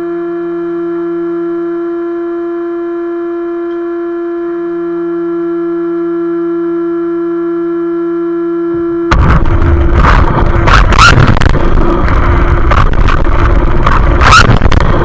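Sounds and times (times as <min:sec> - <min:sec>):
fainter lower tone: 0:00.0 - 0:15.0
steady tone with overtones: 0:08.4 - 0:15.0
loud rush of noise: 0:09.1 - 0:15.0.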